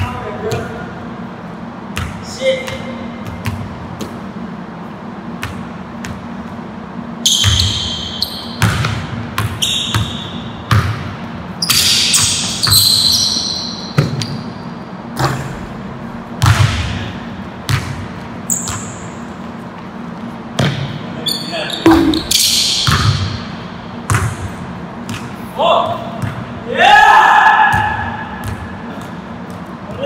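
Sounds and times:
sneakers squeaking: 1.8s - 4.4s, 5.3s - 25.5s, 27.7s - 30.0s
basketball bouncing on wooden floor: 21.8s - 23.3s.

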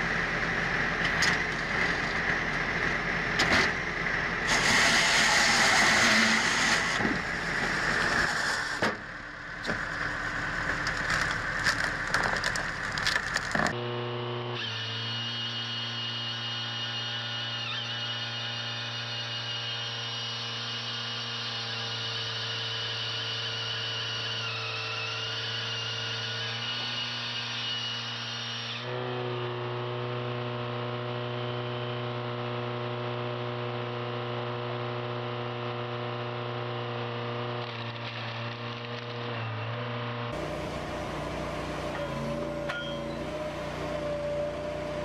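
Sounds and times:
engine droning: 0.0s - 16.8s, 19.9s - 45.0s.

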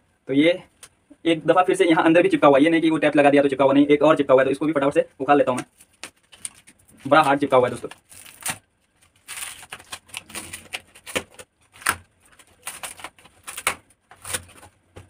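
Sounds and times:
paper envelope tearing: 5.7s - 14.8s.

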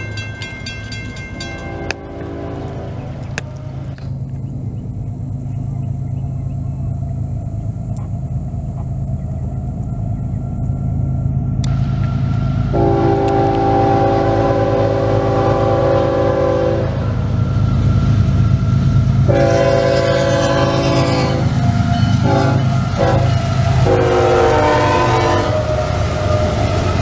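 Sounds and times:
diesel locomotive rumble: 0.0s - 27.0s
train horn blasts: 1.4s - 4.0s, 12.7s - 17.3s, 19.2s - 26.6s.

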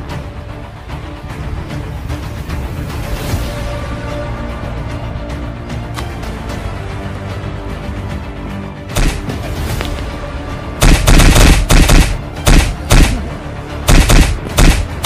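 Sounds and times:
background music: 0.0s - 15.0s
punch and kick sound effects: 8.9s - 9.4s, 10.8s - 13.2s, 13.9s - 15.0s.

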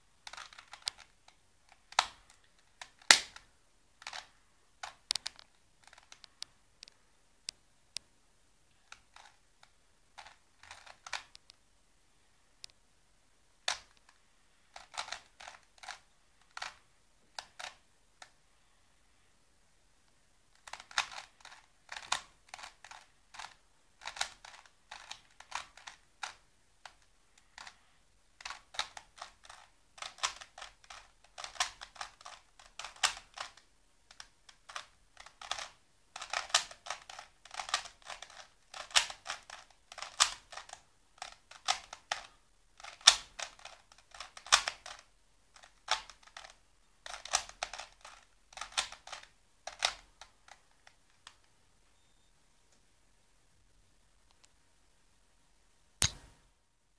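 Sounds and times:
plastic cube clicking: 0.2s - 6.5s, 8.9s - 9.4s, 10.2s - 11.4s, 13.6s - 14.1s, 14.7s - 18.4s, 20.5s - 27.8s, 28.4s - 51.5s.

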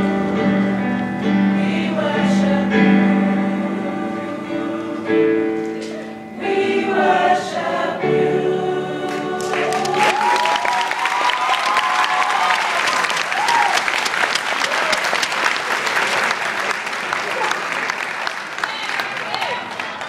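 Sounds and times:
choir singing in harmony: 0.0s - 10.6s
applause and cheers: 9.4s - 20.0s.

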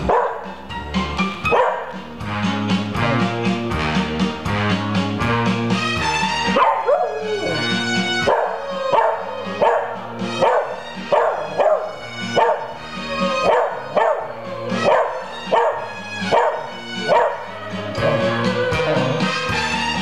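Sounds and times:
dog howling barks: 0.0s - 0.5s, 1.5s - 2.0s, 6.4s - 20.0s
music with steady beat: 0.0s - 20.0s.

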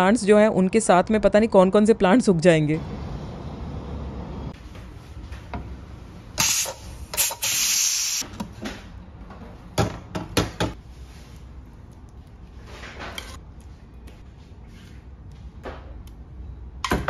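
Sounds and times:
pressure cooker steam hissing: 6.4s - 8.2s.

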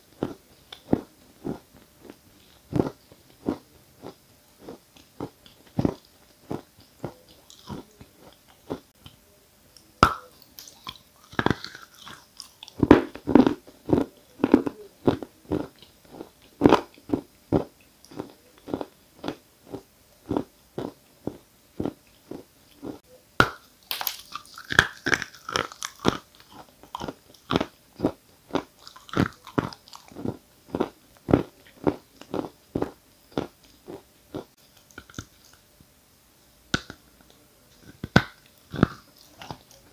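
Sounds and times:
chewing chalk crunches: 10.4s - 23.0s, 23.9s - 35.6s, 37.7s - 39.9s.

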